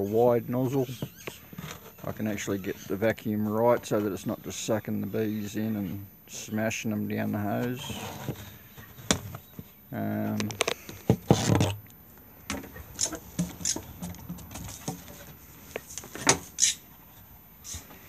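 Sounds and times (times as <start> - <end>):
knocks and clicks handling hose: 12.5 - 15.4.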